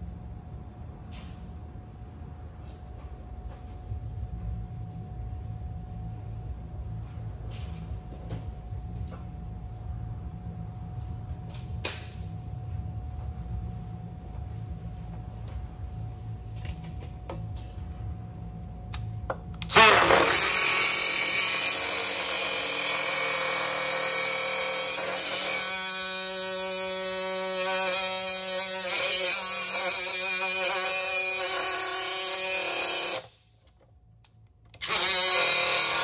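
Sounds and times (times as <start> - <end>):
electric power tool whining: 19.6 - 33.4, 34.8 - 36.0.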